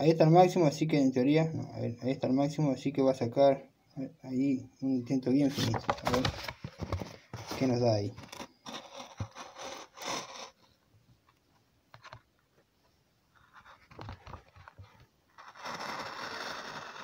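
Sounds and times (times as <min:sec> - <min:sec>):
handling rustles: 0:05.4 - 0:10.1.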